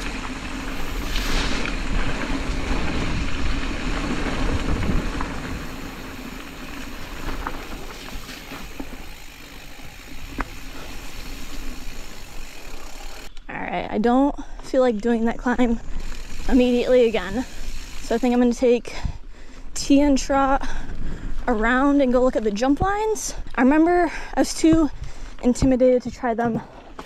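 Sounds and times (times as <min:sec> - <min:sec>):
bike clicks and knocks: 0:00.0 - 0:13.4
bike tyres rolling over rocks: 0:00.0 - 0:13.4, 0:15.0 - 0:18.7
wind on microphone: 0:00.6 - 0:09.1.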